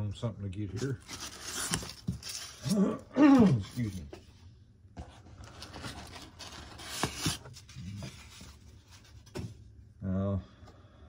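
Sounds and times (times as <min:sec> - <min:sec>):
packing wrap and cardboard rustling: 0:00.7 - 0:04.1, 0:05.1 - 0:09.3.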